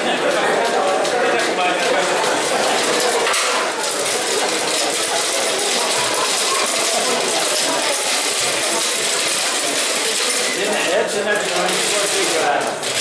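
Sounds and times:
balls clattering in spinning drums: 0.0s - 13.0s.

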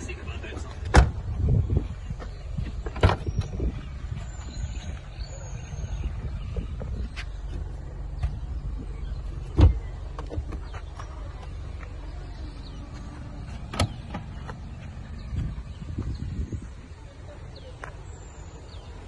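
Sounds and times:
steady low rumble: 0.0s - 19.0s
car boot lid shutting: 9.5s - 10.7s, 13.7s - 14.3s.

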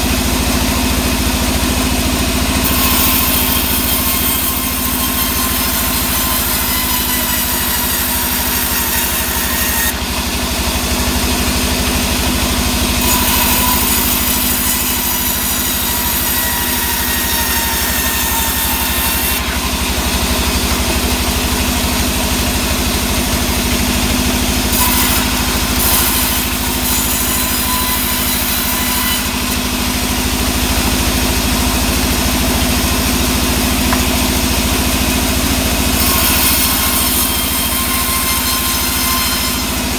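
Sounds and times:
band saw ripping a log: 0.0s - 39.9s.

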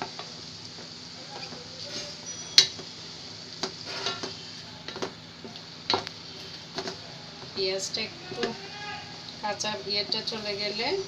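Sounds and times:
faint sizzle of frying meat: 0.0s - 11.0s
wooden spatula scraping a pot: 3.8s - 4.5s.

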